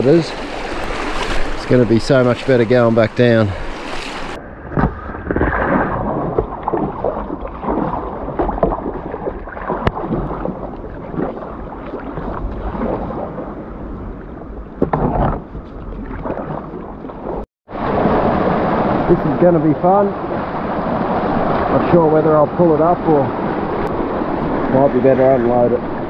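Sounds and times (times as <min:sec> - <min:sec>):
person wading through water: 0:00.0 - 0:17.4
flowing river water: 0:00.0 - 0:26.0.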